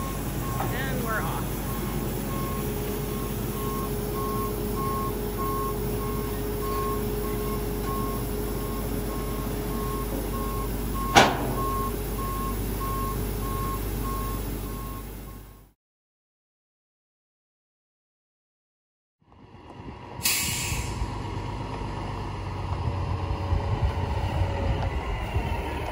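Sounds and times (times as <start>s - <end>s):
backup alarm beeping: 0.0s - 15.7s
harvester engine running: 0.0s - 15.7s, 20.9s - 25.9s
sharp bang: 11.1s - 12.1s.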